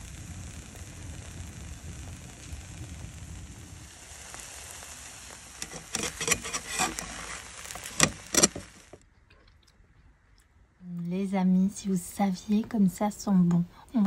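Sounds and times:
omelette sizzling in pan: 0.0 - 9.0
metal spatula scraping pan: 5.6 - 8.8.

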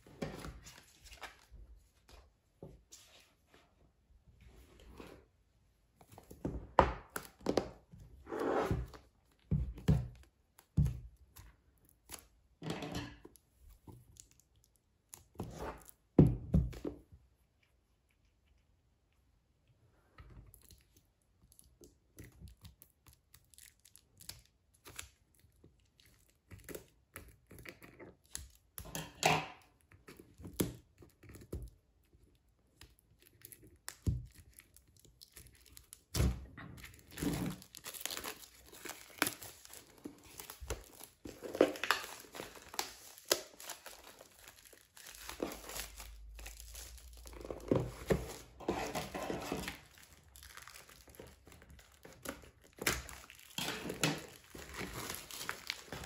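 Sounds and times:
plastic wrap crinkling and tearing: 20.6 - 28.6, 32.9 - 56.0.

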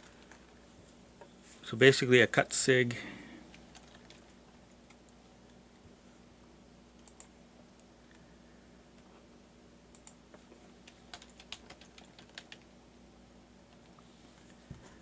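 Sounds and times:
low steady hum: 0.0 - 15.0
keyboard typing: 3.5 - 4.3, 10.8 - 12.7.

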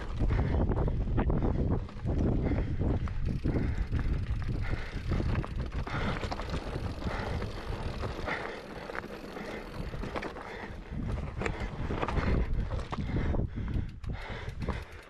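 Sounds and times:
wind noise on microphone: 0.0 - 8.4, 9.8 - 15.0
bike rattling and clicking: 0.0 - 15.0
tyres crunching over loose stones: 4.0 - 13.1.

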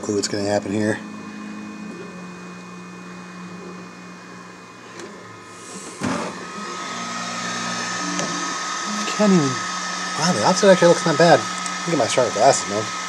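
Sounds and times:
high steady whine: 0.0 - 13.0
printer motors and fans humming: 0.0 - 13.0.

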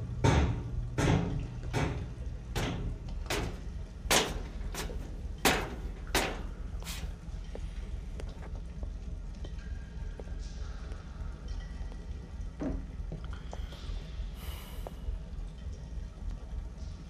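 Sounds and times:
low steady hum: 0.0 - 17.0
hard-soled footsteps: 2.6 - 7.2.

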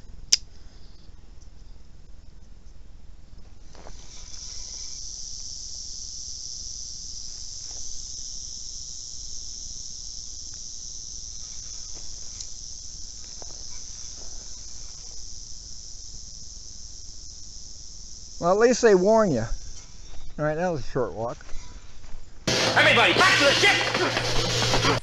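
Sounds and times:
rattlesnake rattling: 3.4 - 20.5.

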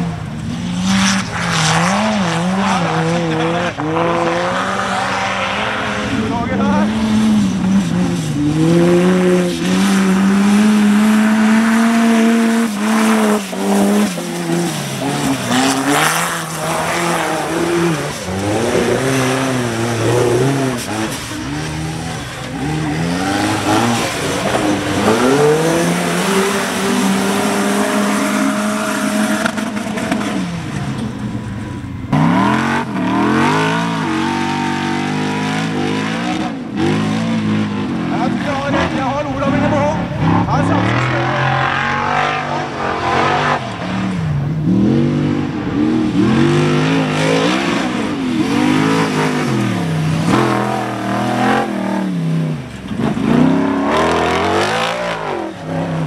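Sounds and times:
buggy engines revving: 0.0 - 56.0.

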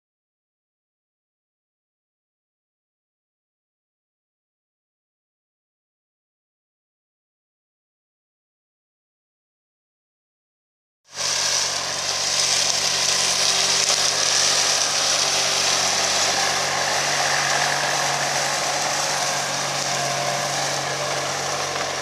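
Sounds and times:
implements churning crop: 11.1 - 22.0
tractor engine hum: 11.1 - 22.0.

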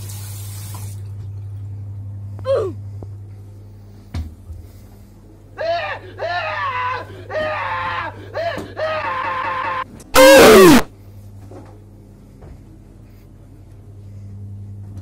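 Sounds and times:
high-pitched squeals: 10.2 - 10.9.

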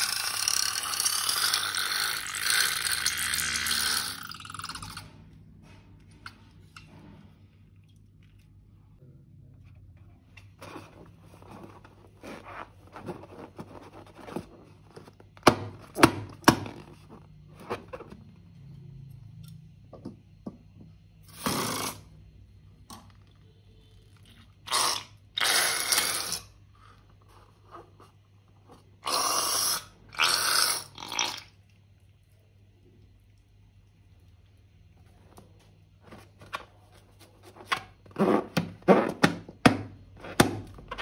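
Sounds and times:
balloon rubber squeaking: 38.0 - 39.4.

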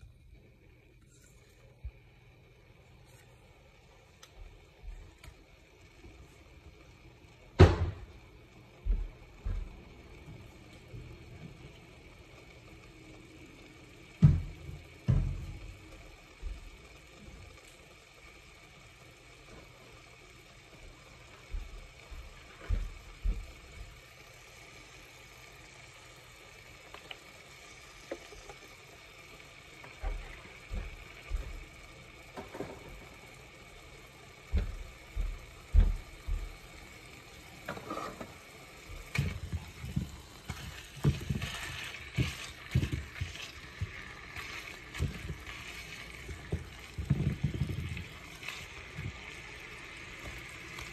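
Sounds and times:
meat sizzling: 1.1 - 50.9
utensil scraping meat in a pan: 37.7 - 49.3.

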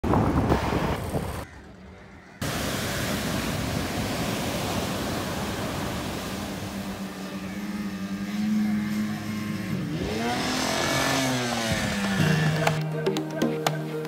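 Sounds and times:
traffic noise: 0.0 - 12.8
boat motor hum: 1.5 - 14.0
surf breaking on beach: 2.4 - 7.4.

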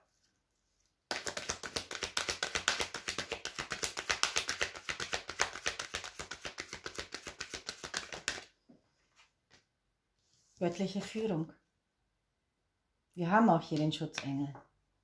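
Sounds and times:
cards being shuffled: 1.1 - 8.5.

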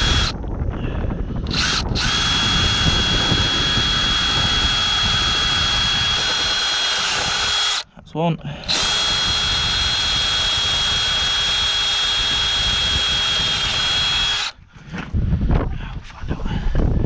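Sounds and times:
cordless drill whining: 0.0 - 0.4, 1.4 - 7.9, 8.6 - 14.6.

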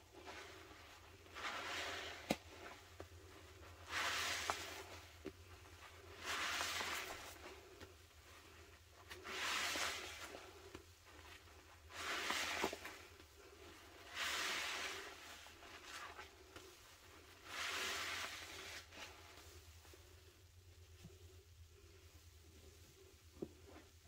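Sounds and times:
sponge squelching in suds: 0.2 - 7.8, 8.5 - 19.5.

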